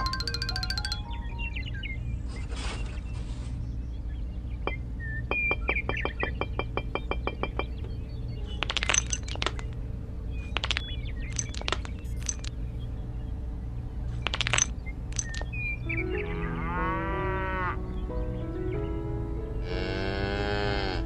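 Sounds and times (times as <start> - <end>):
steady low hum: 0.0 - 21.0
small hard clicks and clinks: 8.6 - 9.8, 10.6 - 12.6, 14.3 - 15.6
cow mooing: 16.4 - 17.8, 19.6 - 21.0.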